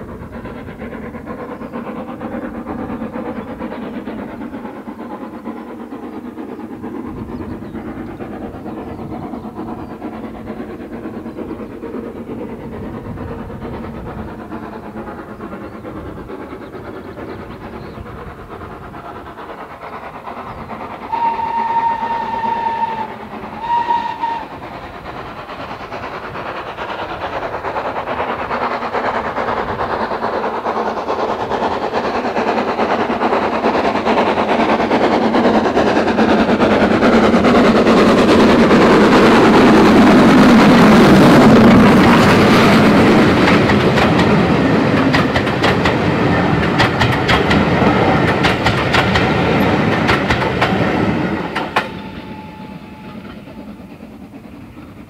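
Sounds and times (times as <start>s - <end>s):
steam locomotive exhaust passing: 0.0s - 55.0s
wheels clacking over rail joints: 17.7s - 55.0s
steam locomotive whistle: 21.1s - 24.7s, 51.4s - 53.6s.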